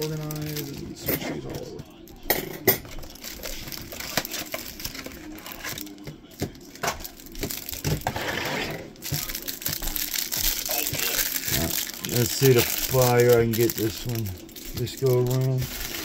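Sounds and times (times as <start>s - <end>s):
packaging crinkling: 0.0s - 1.0s, 3.0s - 8.2s, 9.0s - 16.0s
cards clicking and rustling: 9.0s - 16.0s.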